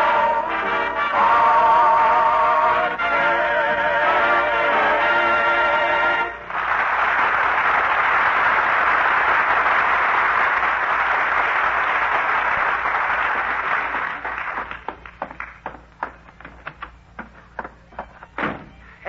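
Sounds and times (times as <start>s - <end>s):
audience applauding: 6.0s - 16.5s.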